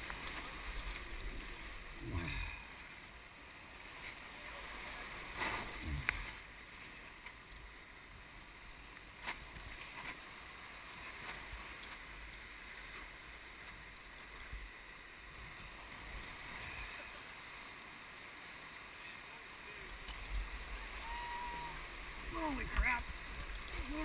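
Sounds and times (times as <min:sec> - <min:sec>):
whitewater rapids rushing: 0:20.6 - 0:24.0.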